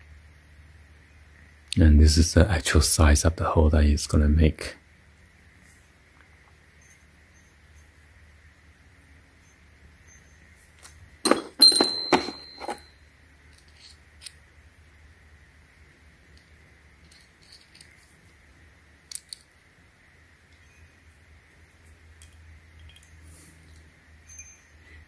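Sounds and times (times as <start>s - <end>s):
metal parts clinking: 10.8s - 12.9s, 13.5s - 14.4s, 17.0s - 18.1s, 22.2s - 24.6s.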